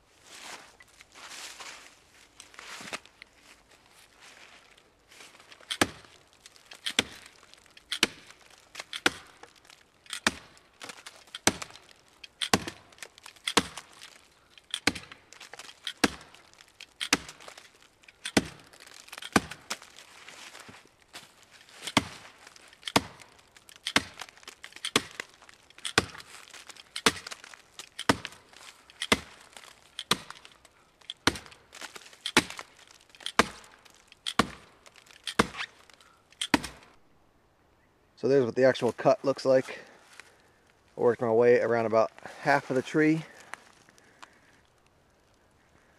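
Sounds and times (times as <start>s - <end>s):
hatchet chopping into tree trunk: 5.7s - 6.2s, 6.8s - 14.1s, 14.7s - 17.6s, 18.3s - 20.0s, 21.8s - 28.4s, 29.0s - 30.5s, 31.1s - 35.7s, 36.4s - 36.9s.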